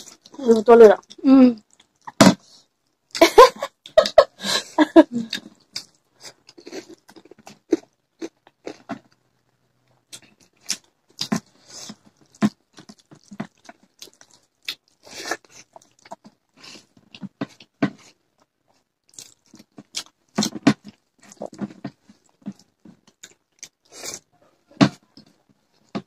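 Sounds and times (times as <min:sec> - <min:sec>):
people chewing and smacking: 0:00.0 - 0:04.2, 0:05.1 - 0:26.0.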